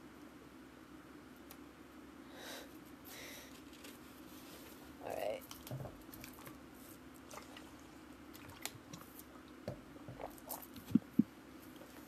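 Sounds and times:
steady low hum: 0.0 - 12.0
small clicks and rustles: 2.7 - 4.8, 5.4 - 7.6.

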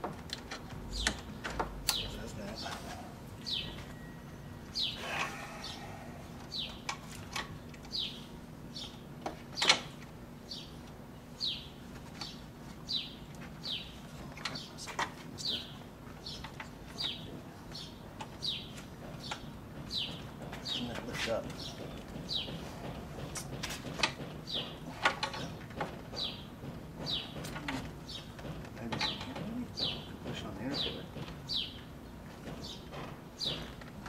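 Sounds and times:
sharp clicks and knocks: 0.0 - 2.7, 16.4 - 34.0
bird chirping: 0.9 - 6.9, 7.8 - 9.0, 11.4 - 22.7, 25.4 - 33.7.

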